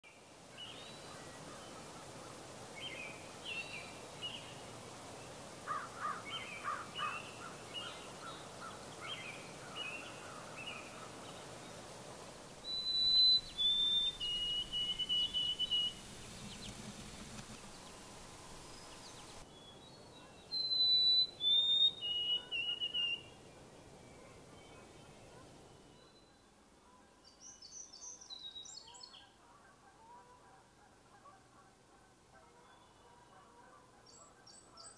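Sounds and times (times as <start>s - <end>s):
sparrow whistled song: 12.6s - 16.8s, 18.8s - 23.4s.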